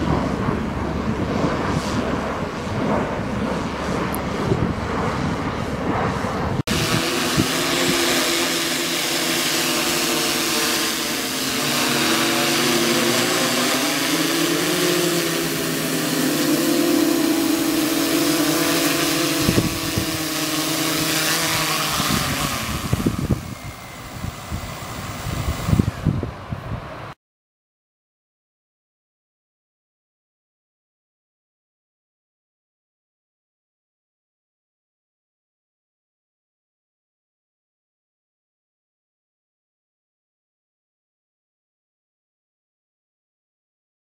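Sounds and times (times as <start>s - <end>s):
drone propellers whining: 0.0s - 27.2s.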